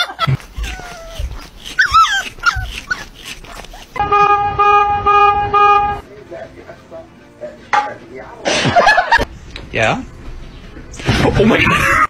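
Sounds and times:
small dog whining and yelping: 0.0s - 4.0s
car horn honks: 4.0s - 6.0s.

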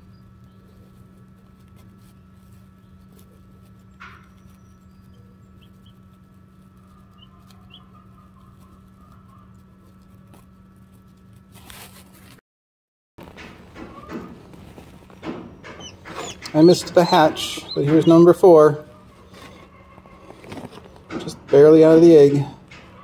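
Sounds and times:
incubator humming: 0.0s - 12.3s, 13.2s - 23.0s
faint chick peeps: 2.3s - 10.4s, 15.7s - 20.2s.

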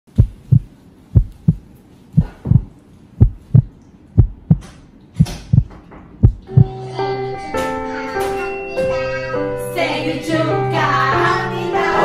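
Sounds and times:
heartbeat thumps: 0.1s - 6.7s.

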